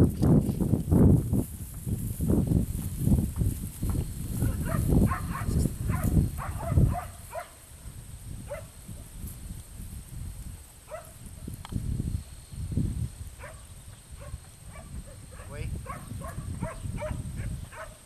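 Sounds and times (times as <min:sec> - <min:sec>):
dog barking: 0:04.6 - 0:07.6, 0:08.5 - 0:08.7, 0:10.9 - 0:11.2, 0:13.4 - 0:18.0.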